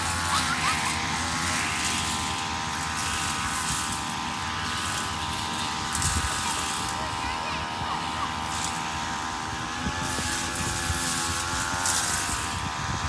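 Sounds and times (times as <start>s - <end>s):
brush cutter engine drone: 0.0s - 13.0s.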